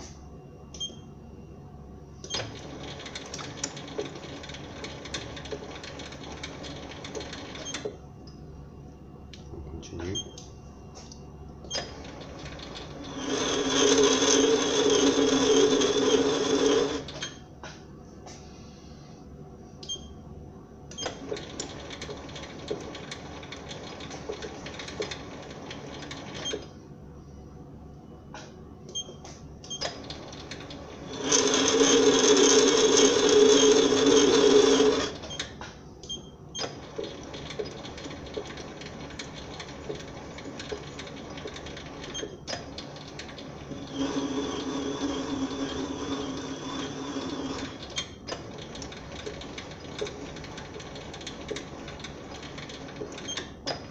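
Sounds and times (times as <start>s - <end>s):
lathe running quietly: 0.0s - 53.9s
lathe cutting with whine: 13.0s - 17.1s, 31.0s - 35.1s, 43.7s - 47.8s.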